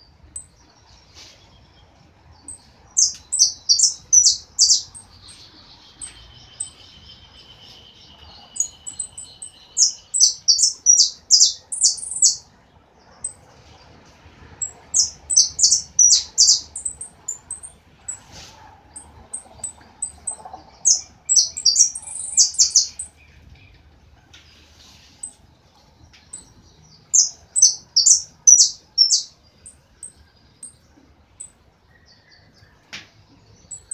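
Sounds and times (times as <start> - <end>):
finch singing: 2.4 - 12.5, 14.6 - 18.3, 18.9 - 23.8, 26.1 - 30.8, 33.6 - 33.9.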